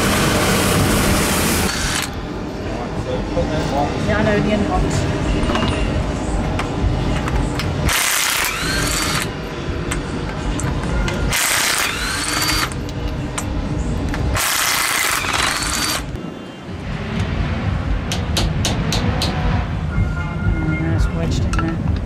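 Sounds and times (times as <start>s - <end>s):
power tool motor whine: 0.0s - 2.2s, 7.9s - 9.3s, 11.3s - 12.8s, 14.4s - 16.1s.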